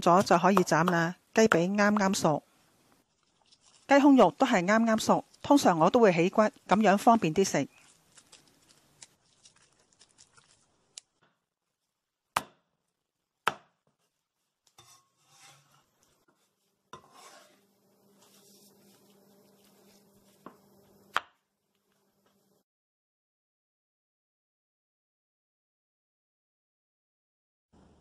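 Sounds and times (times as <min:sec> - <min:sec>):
faint scraping and handling: 0:03.0 - 0:04.0, 0:07.7 - 0:10.7, 0:14.0 - 0:21.0.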